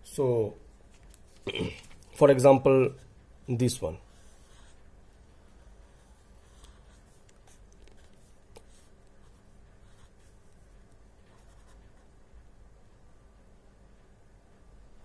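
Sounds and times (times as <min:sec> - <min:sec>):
low room hum: 0:00.0 - 0:15.0
pen scratching on paper: 0:04.1 - 0:10.6, 0:11.2 - 0:12.1.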